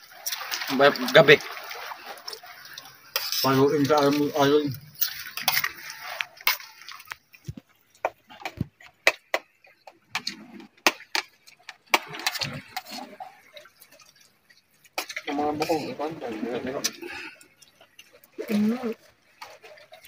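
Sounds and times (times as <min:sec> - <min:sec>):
seashells clicking against plates: 0:00.2 - 0:13.0.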